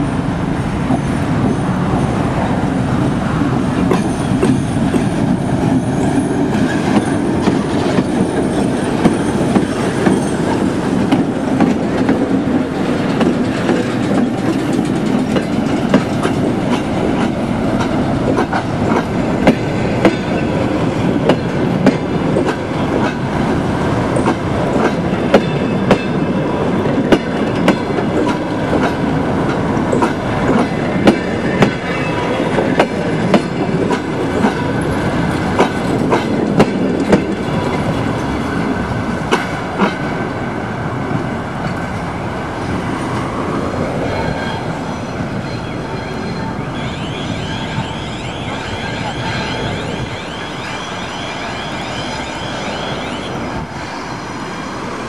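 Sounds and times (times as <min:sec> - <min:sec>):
train rumble: 0:00.0 - 0:55.0
train wheels clicking over rail joints: 0:03.6 - 0:40.2.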